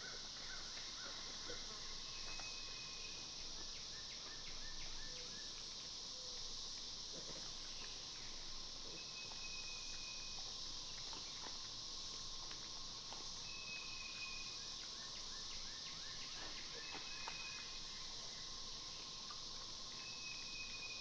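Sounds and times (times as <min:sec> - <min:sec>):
insects calling: 0:00.0 - 0:21.0
faint ticks: 0:05.0 - 0:17.8.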